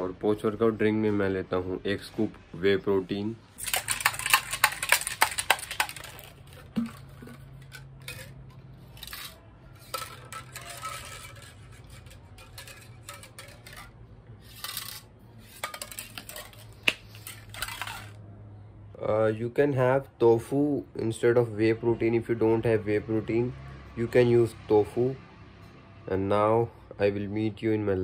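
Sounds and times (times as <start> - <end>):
metal shaker bottle rattling: 3.6 - 18.2.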